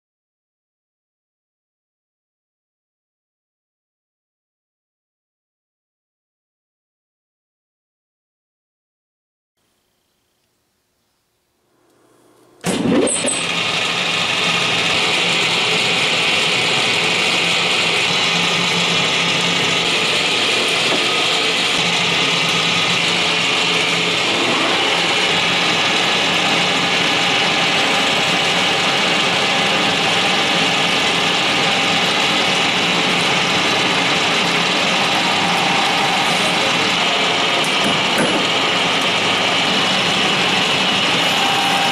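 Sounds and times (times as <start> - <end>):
lathe mechanical hum: 11.7 - 41.9.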